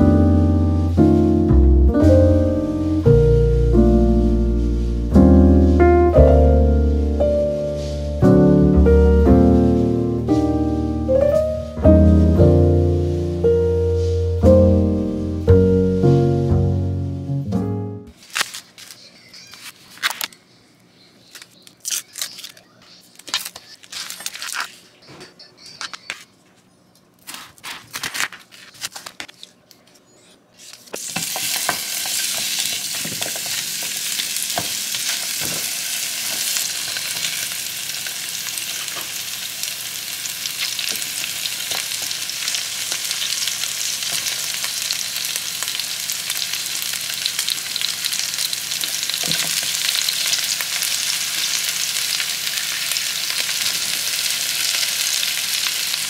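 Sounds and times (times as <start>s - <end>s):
vegetables sizzling in a pan: 2.3s - 5.8s, 6.4s - 14.4s, 31.0s - 56.0s.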